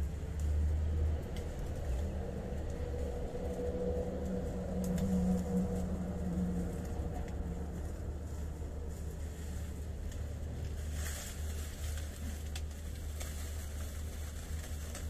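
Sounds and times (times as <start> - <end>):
low engine rumble: 0.0 - 15.0
humming tone: 2.1 - 8.9.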